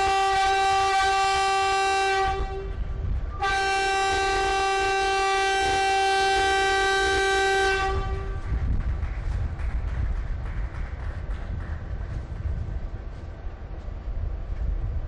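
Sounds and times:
locomotive air horn blasts: 0.0 - 8.6.

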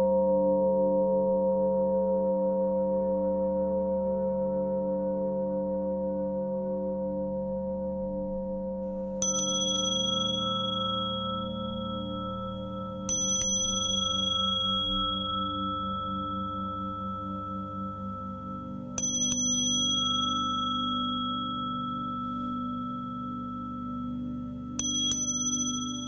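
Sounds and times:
singing bowls droning: 7.0 - 26.0
bright bell strikes: 9.1 - 26.0.

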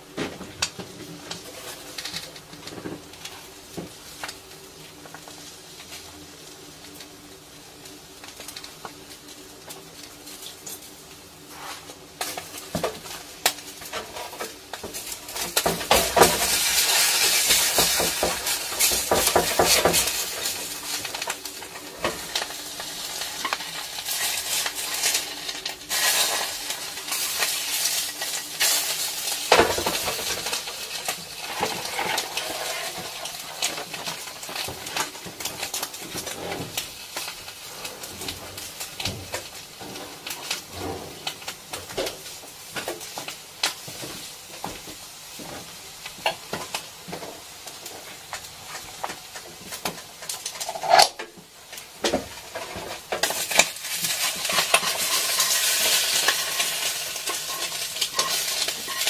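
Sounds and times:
food sizzling in a pan: 0.0 - 59.0
utensil scraping a pan: 11.5 - 12.0, 31.3 - 33.7, 50.4 - 51.2, 52.4 - 59.0.

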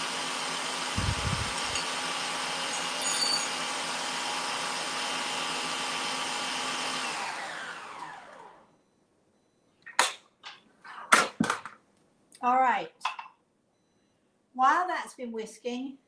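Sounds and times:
stand mixer motor whine: 0.0 - 2.7, 3.6 - 8.6
brief ringing clink: 3.0 - 3.5.

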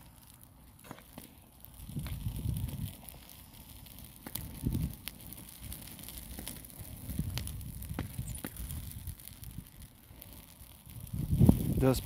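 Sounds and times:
fire crackling: 0.0 - 12.0
sharp pops of burning needles: 0.0 - 12.0
wind rumble on microphone: 1.8 - 3.2, 4.3 - 5.2, 5.8 - 9.9, 10.8 - 12.0.

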